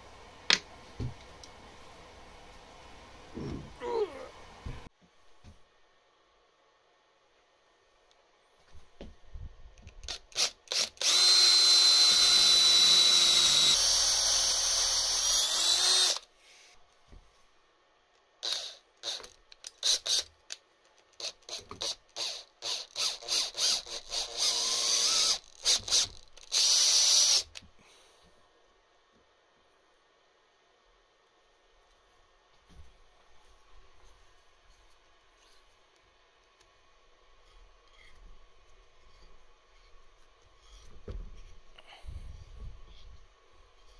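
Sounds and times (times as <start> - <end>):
power drill drilling into metal: 10.1 - 16.2, 22.2 - 27.6.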